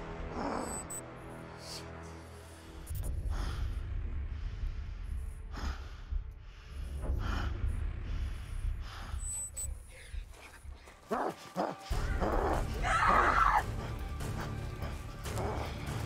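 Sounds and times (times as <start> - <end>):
deep low rumble: 2.9 - 10.9
person panting hard: 13.6 - 16.0.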